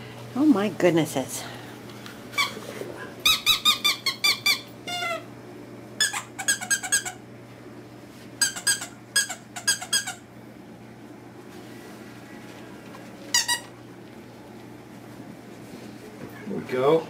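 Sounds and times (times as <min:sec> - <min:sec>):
squeaky dog toy squeaking: 0:03.2 - 0:05.2, 0:06.0 - 0:07.2, 0:08.4 - 0:10.2, 0:13.3 - 0:13.7.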